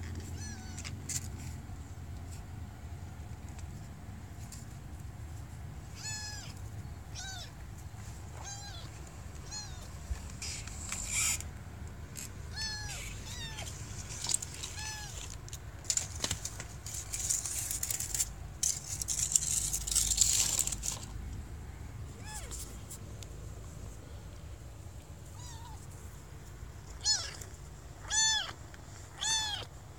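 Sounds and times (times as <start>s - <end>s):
kitten mewing: 0.2s - 1.0s, 5.9s - 7.6s, 8.4s - 11.5s, 12.4s - 15.3s, 22.1s - 22.9s, 25.2s - 25.9s, 26.9s - 29.7s.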